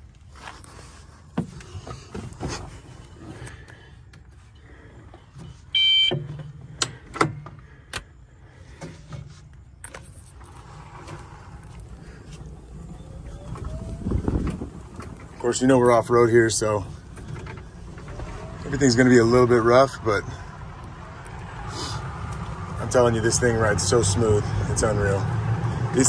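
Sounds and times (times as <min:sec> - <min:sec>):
loud electronic beep: 0:05.8 - 0:06.2.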